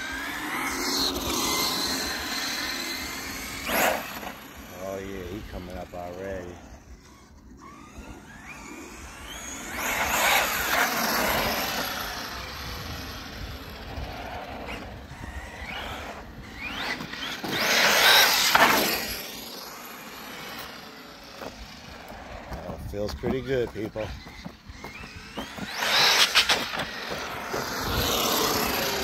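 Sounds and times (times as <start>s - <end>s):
rc truck motor whine: 0.0s - 29.0s.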